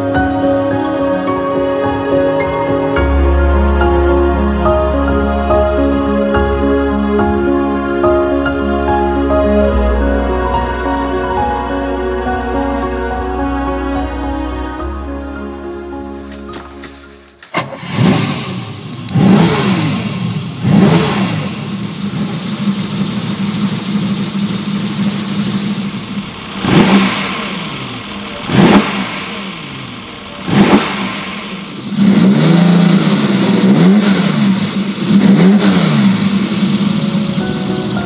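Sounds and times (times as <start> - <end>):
car engine revving: 17.5 - 38.0.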